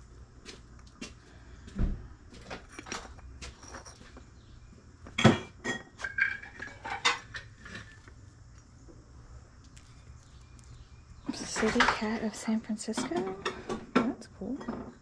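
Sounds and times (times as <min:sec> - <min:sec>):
faint room noise: 0:00.0 - 0:15.0
ceramic pieces clinking and knocking: 0:02.7 - 0:04.2.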